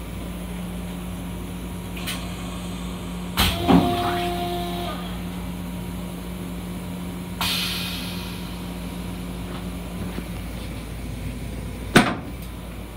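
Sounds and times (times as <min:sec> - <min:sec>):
hiss of released air: 0:07.4 - 0:08.8.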